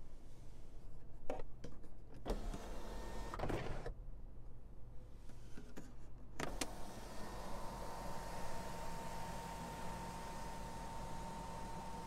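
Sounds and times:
sunroof motor running: 0:06.7 - 0:12.0.

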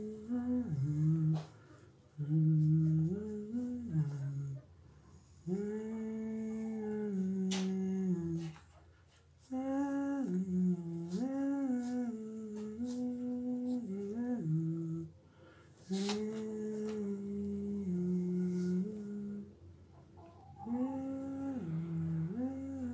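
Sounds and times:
man humming a slow tune: 0:00.0 - 0:01.6, 0:02.2 - 0:04.7, 0:05.4 - 0:08.6, 0:09.4 - 0:15.2, 0:15.8 - 0:19.6, 0:20.5 - 0:22.9.

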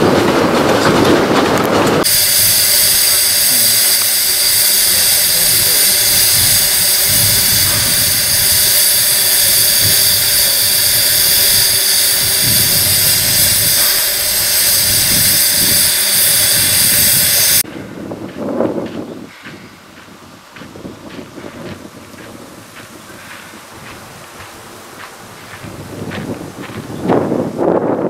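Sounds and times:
steam hissing: 0:02.0 - 0:17.7.

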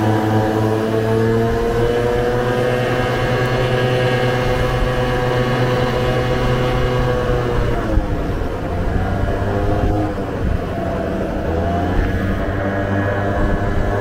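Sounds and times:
scooter engine running: 0:00.0 - 0:14.0
wind rumbling on microphone: 0:00.0 - 0:14.0.

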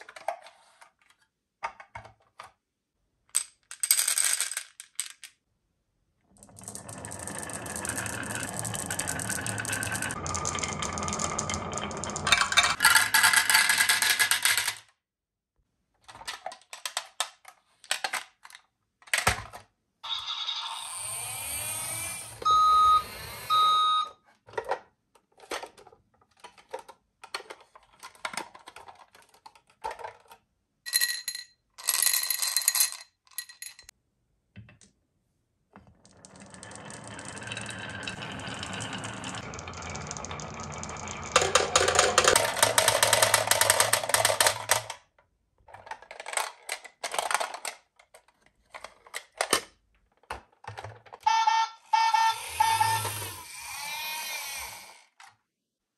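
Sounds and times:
marbles clicking on wooden track: 0:03.4 - 0:05.4, 0:06.4 - 0:14.9, 0:36.0 - 0:44.9
marbles rolling rumble: 0:06.3 - 0:14.7, 0:35.9 - 0:44.7
toy electronic beeps: 0:20.0 - 0:24.1, 0:51.3 - 0:54.3.

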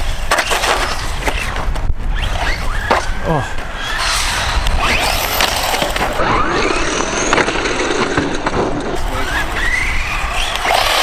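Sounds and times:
electric motor whining: 0:02.1 - 0:07.6, 0:09.0 - 0:11.0.

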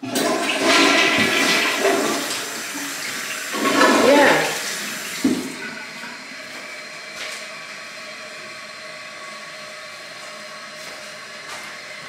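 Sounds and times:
water hissing into cistern: 0:00.0 - 0:06.6.

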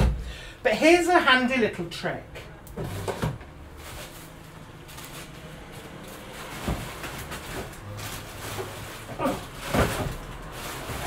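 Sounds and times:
handling noises: 0:02.7 - 0:11.0.

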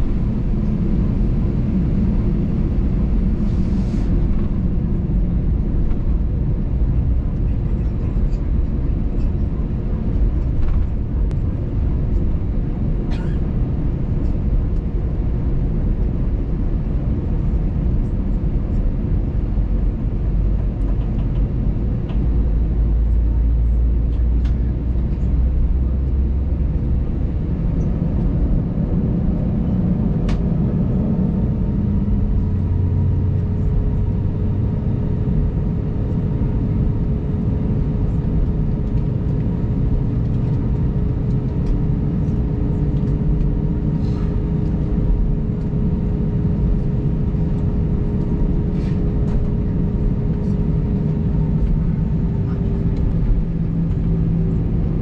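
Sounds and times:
steady whine: 0:00.0 - 0:23.2
engine low rumble: 0:00.0 - 0:55.0.

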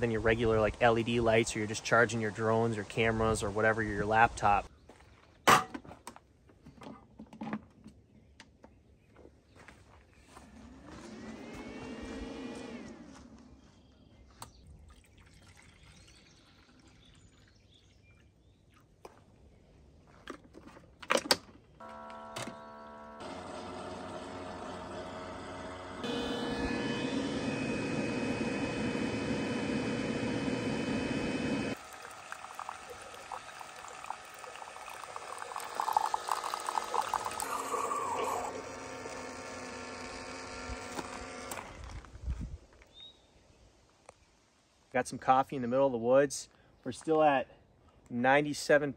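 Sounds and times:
coffee stream splashing in mug: 0:14.9 - 0:17.6, 0:31.7 - 0:38.5
water trickling into machine: 0:14.9 - 0:17.6, 0:31.7 - 0:40.9
coffee maker humming: 0:21.8 - 0:42.0.

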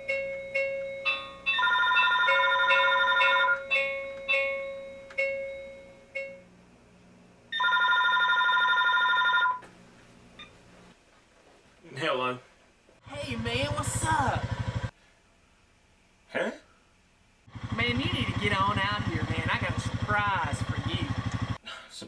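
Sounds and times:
chiming melody: 0:00.0 - 0:06.4
telephone ringing: 0:00.0 - 0:06.4, 0:07.5 - 0:09.7.

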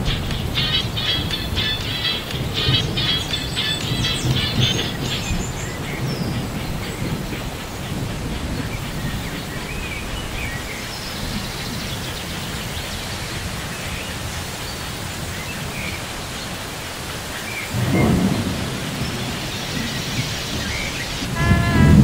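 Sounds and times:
low thunder rumble: 0:00.0 - 0:14.5, 0:17.7 - 0:22.0
light rain: 0:00.0 - 0:22.0
bird chirps: 0:00.1 - 0:07.1.

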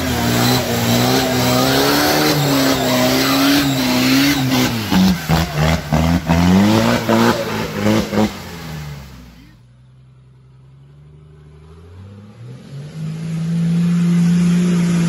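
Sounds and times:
diesel engine revving: 0:00.0 - 0:09.4.

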